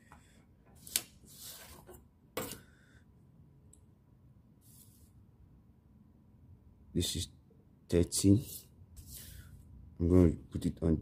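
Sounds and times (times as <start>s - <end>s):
soft scrape on paper: 4.6s - 5.2s, 8.4s - 9.6s.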